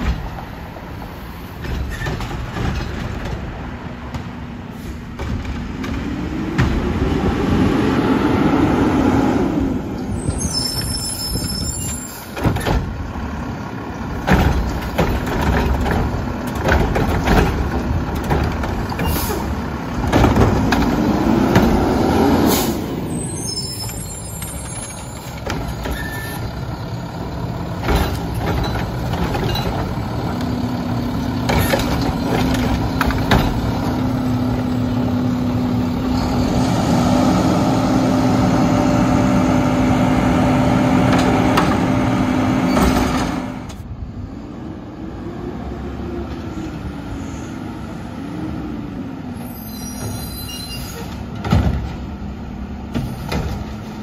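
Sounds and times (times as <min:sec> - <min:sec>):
air brakes hissing: 0:04.7 - 0:05.1, 0:19.0 - 0:19.6, 0:22.3 - 0:26.4, 0:49.4 - 0:51.3
diesel engine revving: 0:04.8 - 0:50.0.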